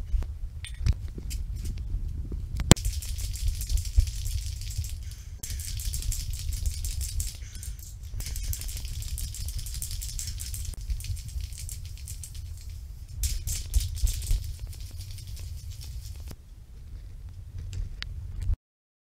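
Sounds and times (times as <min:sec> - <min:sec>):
bicycle rattling and clicking: 0:02.7 - 0:16.3.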